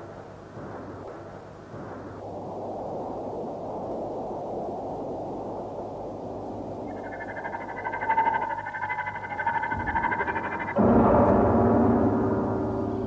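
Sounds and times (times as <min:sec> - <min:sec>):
low rushing noise: 0:00.0 - 0:13.0
music with trembling high tones: 0:06.9 - 0:13.0.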